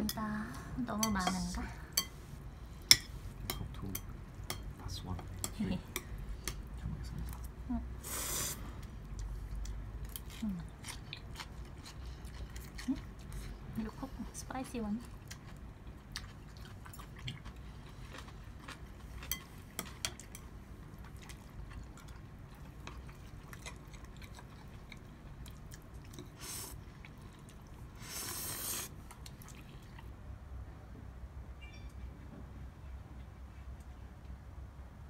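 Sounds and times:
chewing and mouth sounds: 8.8s - 13.8s, 15.0s - 30.1s.

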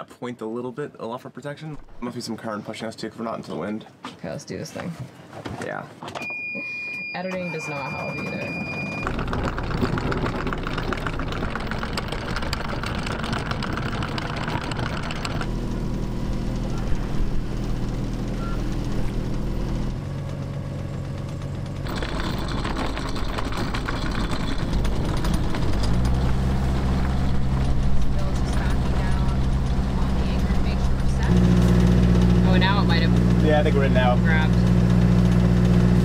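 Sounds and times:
boat engine running: 7.4s - 36.0s.

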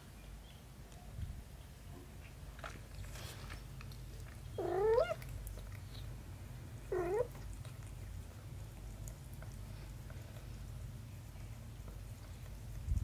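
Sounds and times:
cat meowing: 4.6s - 5.2s.

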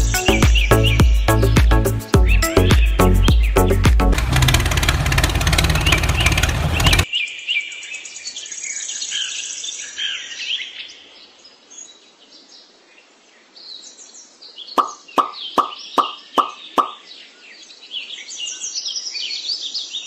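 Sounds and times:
music: 0.0s - 4.2s
birds chirping and trilling: 0.1s - 3.8s, 4.6s - 20.0s.

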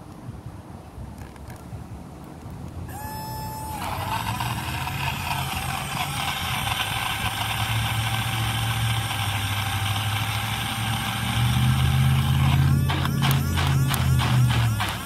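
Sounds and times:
short steady tone: 2.9s - 6.7s, 7.7s - 15.0s
blender motor whirring: 2.9s - 15.0s.

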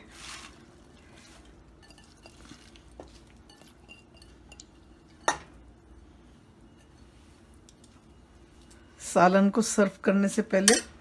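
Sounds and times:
spinach rustling: 0.0s - 3.8s
glass bowl clinking against pot: 1.8s - 2.5s.

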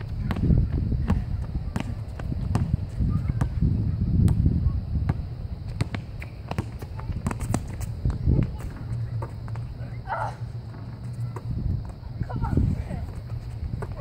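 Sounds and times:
basketball bouncing on hard court: 0.2s - 3.6s, 5.1s - 9.6s.

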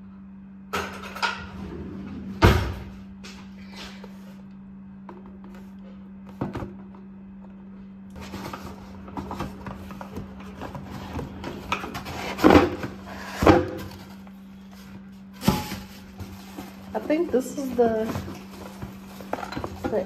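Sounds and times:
low hum: 0.0s - 19.9s
cardboard rustling and scraping: 8.2s - 20.0s.

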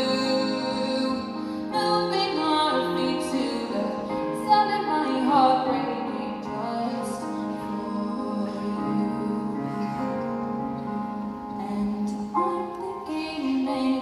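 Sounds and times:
woman singing: 0.0s - 10.5s, 11.5s - 14.0s
grand piano accompaniment: 0.0s - 14.0s.

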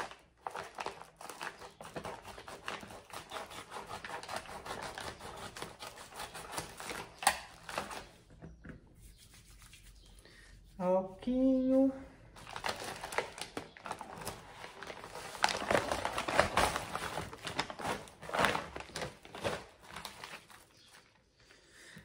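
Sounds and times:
packaging rustling and tearing: 0.0s - 8.2s, 12.4s - 21.2s.

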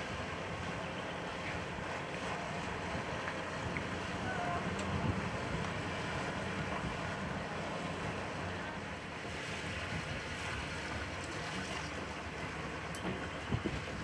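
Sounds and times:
boat engine running: 0.0s - 14.0s
water noise: 0.0s - 14.0s
wind noise on microphone: 2.9s - 7.3s, 9.4s - 10.6s, 13.0s - 14.0s.

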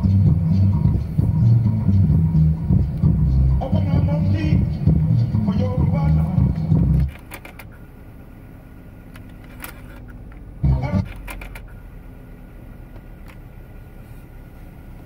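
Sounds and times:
tape mechanism whirring: 9.1s - 11.8s.

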